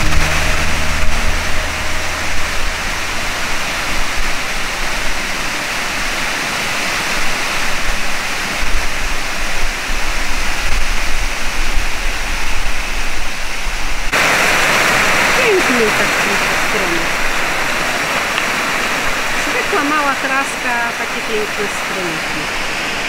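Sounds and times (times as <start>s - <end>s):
water rushing over rocks: 14.1s - 23.0s.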